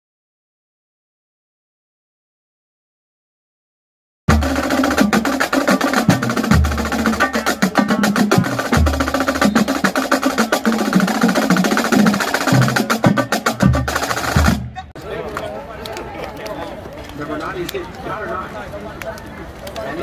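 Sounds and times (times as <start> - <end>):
snare drum strokes: 4.3 - 14.7
bass drum notes: 4.3 - 14.9.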